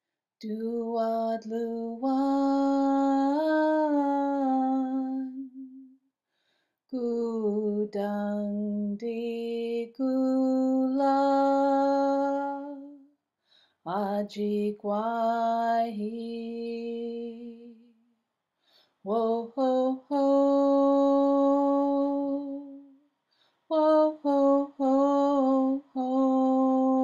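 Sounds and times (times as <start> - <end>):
solo voice singing: 0.4 - 5.9, 7.0 - 13.0, 19.1 - 23.0, 23.7 - 27.0.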